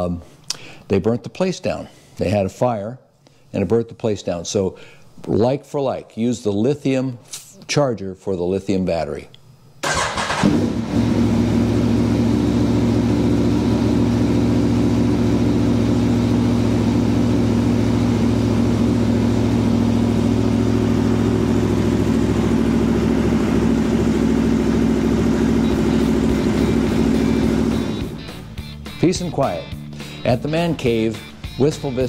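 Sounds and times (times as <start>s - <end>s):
motorcycle engine idling: 9.9s - 28.6s.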